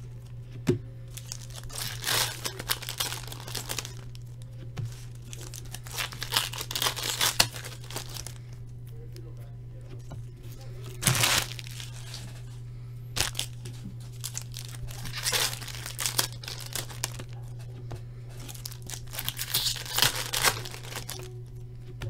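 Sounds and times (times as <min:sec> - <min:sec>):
steady low hum: 0:00.0 - 0:22.0
foil pack tearing and crinkling: 0:01.1 - 0:08.4, 0:10.8 - 0:12.5, 0:13.2 - 0:17.4, 0:18.3 - 0:21.3.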